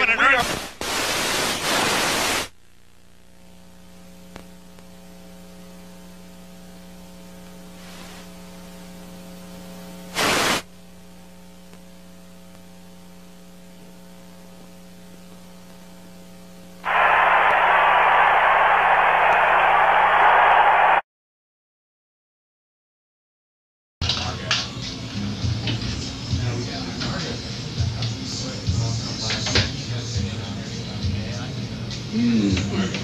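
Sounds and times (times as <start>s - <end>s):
burst of television static: 0.0s - 3.5s, 10.1s - 10.7s, 16.8s - 21.0s
electrical mains hum: 0.0s - 21.0s, 24.0s - 33.0s
faint hiss: 0.4s - 2.5s, 10.1s - 10.7s.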